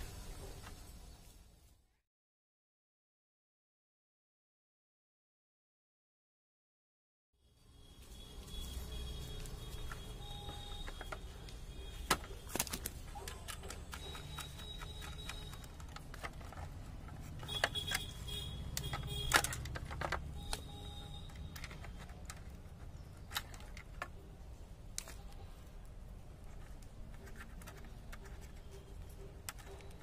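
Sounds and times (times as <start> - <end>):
hand tools clicking and tapping: 9.7 - 24.3, 26.4 - 30.0.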